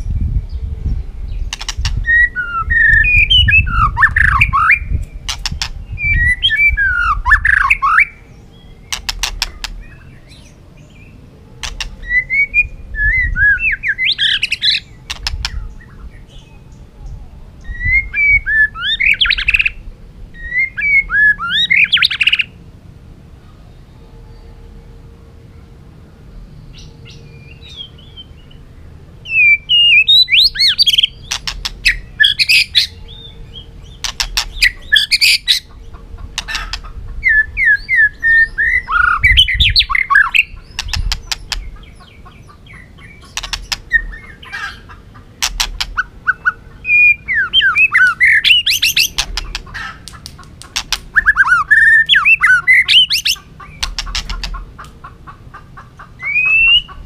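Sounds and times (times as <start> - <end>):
bird clicking notes: 11.6 - 11.9, 34.0 - 34.6, 43.3 - 43.8, 49.2 - 51.3
bird singing whistled phrases: 46.0 - 49.2, 51.1 - 53.4, 56.2 - 57.0.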